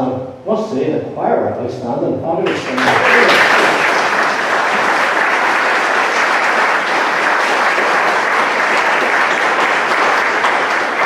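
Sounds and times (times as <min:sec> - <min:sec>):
crowd applauding: 0:02.4 - 0:11.0.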